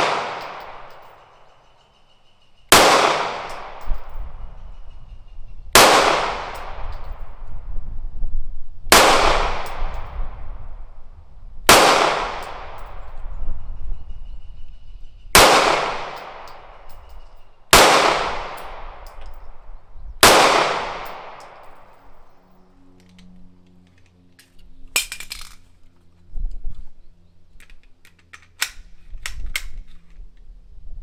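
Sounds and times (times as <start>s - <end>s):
pistol shots with ringing echo: 0.0s - 1.2s, 2.7s - 4.2s, 5.7s - 7.2s, 8.9s - 10.1s, 11.7s - 13.1s, 15.3s - 17.1s, 17.7s - 19.4s, 20.2s - 22.2s
metallic gun handling clicks: 18.6s - 19.6s, 22.9s - 26.8s, 27.6s - 30.5s.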